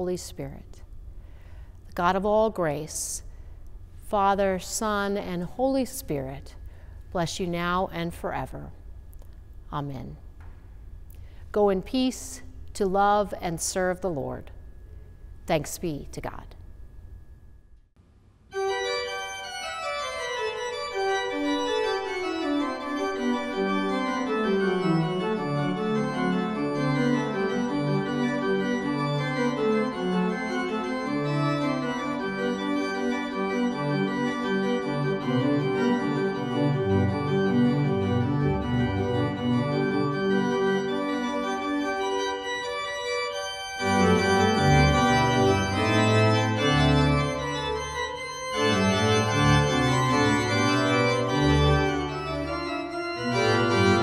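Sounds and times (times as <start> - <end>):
pipe organ music: 18.5 - 54.0
deep organ pedal bass notes: 18.6 - 54.0.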